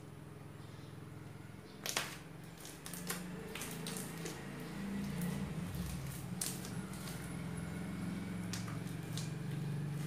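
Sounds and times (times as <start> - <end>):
hands squishing slime: 1.8 - 7.6, 8.2 - 10.0.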